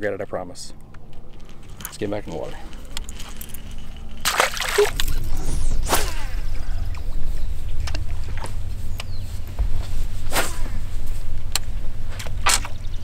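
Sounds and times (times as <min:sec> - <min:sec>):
water sloshing: 0:03.1 - 0:05.3
fish splashing into water: 0:04.2 - 0:05.2.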